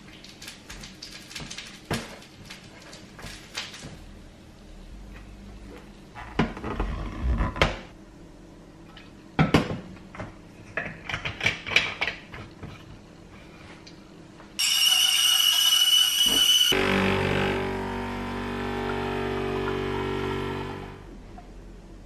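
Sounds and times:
espresso steam wand hissing: 0:14.6 - 0:16.8.

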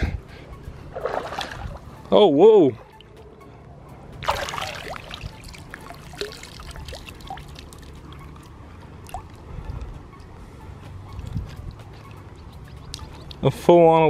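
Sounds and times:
hand splashing into water: 0:01.0 - 0:01.6, 0:04.2 - 0:05.3
stream flowing: 0:04.2 - 0:09.5
water dripping: 0:04.2 - 0:09.5, 0:11.1 - 0:13.5.

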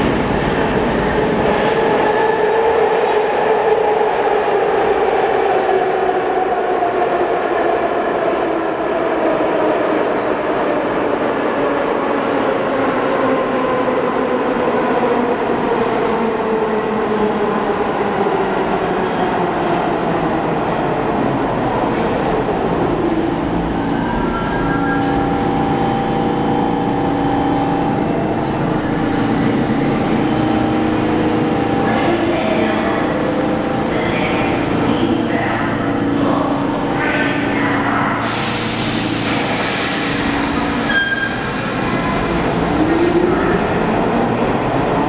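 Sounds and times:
train wheels squealing on rail: 0:23.1 - 0:26.0, 0:38.2 - 0:42.3.

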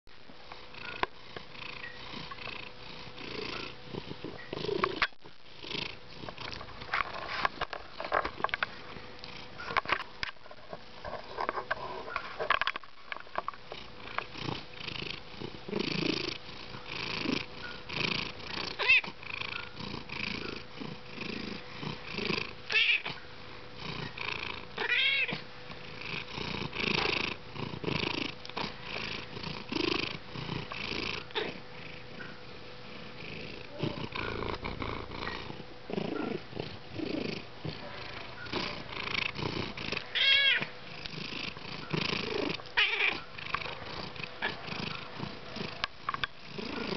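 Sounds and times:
cat purring: 0:00.5 - 0:10.4, 0:11.0 - 0:46.9
cat meowing: 0:18.8 - 0:19.1, 0:22.7 - 0:23.2, 0:24.8 - 0:25.4, 0:40.1 - 0:40.7, 0:42.8 - 0:43.2.

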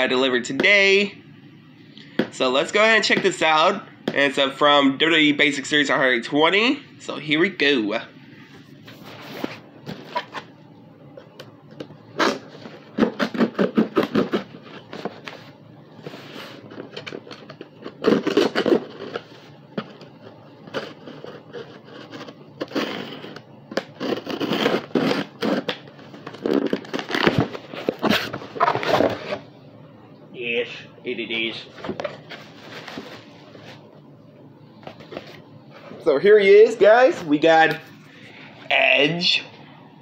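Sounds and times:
cardboard box rustling and scraping: 0:08.8 - 0:10.5, 0:24.0 - 0:29.4, 0:31.8 - 0:33.8.

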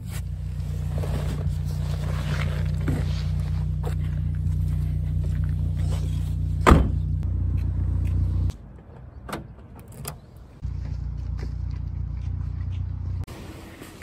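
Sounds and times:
car door shutting thud: 0:06.6 - 0:07.1.

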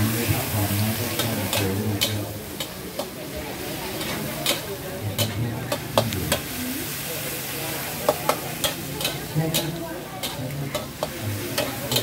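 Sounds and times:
food sizzling in a pan: 0:00.0 - 0:12.0
utensil clinking against pan: 0:08.1 - 0:12.0.

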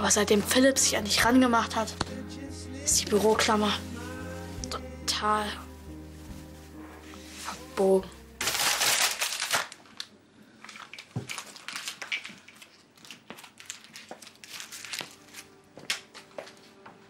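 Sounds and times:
paper being crumpled: 0:08.4 - 0:16.6.

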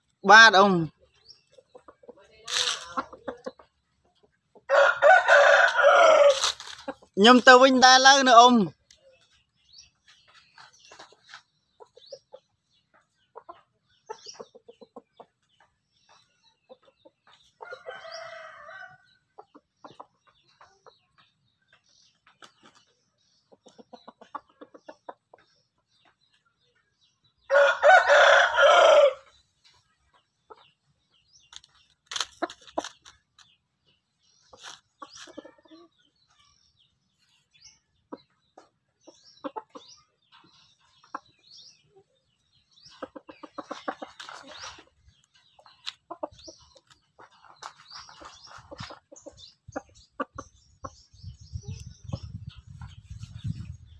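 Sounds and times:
chicken clucking: 0:01.0 - 0:07.2, 0:08.9 - 0:18.5, 0:19.2 - 0:28.9, 0:29.6 - 0:53.9
rooster crowing: 0:04.7 - 0:06.4, 0:27.5 - 0:29.2.

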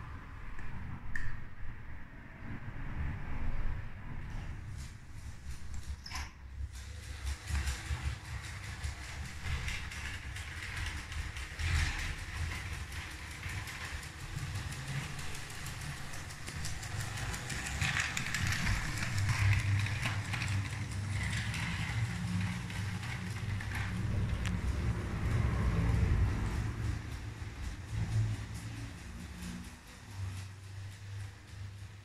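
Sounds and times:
wheels clicking over plastic track: 0:05.7 - 0:32.0
electric train motor whirring: 0:06.7 - 0:32.0.

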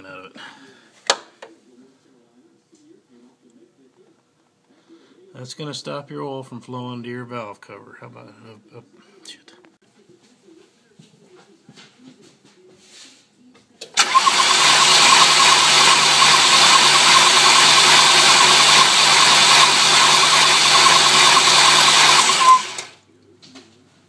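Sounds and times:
engine starter cranking whirr: 0:14.0 - 0:23.0.

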